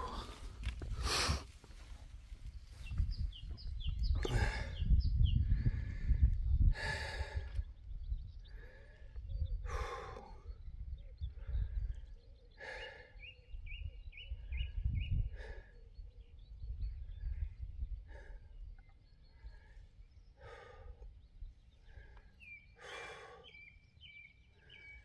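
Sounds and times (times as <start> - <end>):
person breathing hard: 4.2 - 7.7, 8.4 - 10.6, 12.5 - 13.3, 19.4 - 21.1, 21.8 - 23.6.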